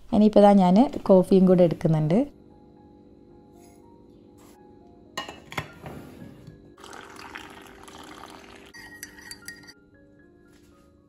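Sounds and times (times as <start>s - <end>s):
soft background music: 0.0s - 11.0s
spoon clinking against mug: 7.9s - 9.8s
metal canister clink: 8.8s - 9.8s.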